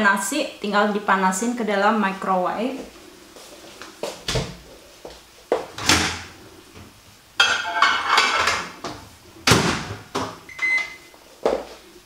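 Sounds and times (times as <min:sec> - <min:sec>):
dish clattering: 0:07.4 - 0:08.8.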